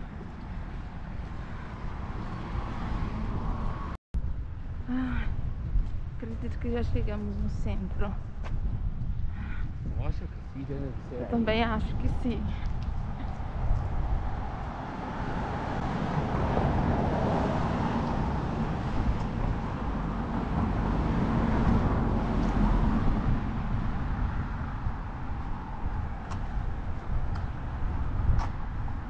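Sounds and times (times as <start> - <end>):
car passing: 0.0 - 4.0, 10.5 - 29.0
road traffic: 0.0 - 29.0.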